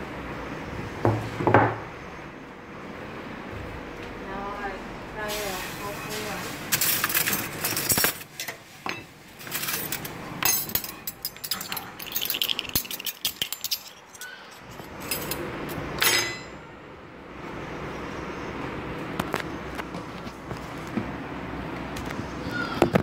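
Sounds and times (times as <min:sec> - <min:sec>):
cutlery clinking: 0:06.8 - 0:15.4, 0:16.0 - 0:16.6.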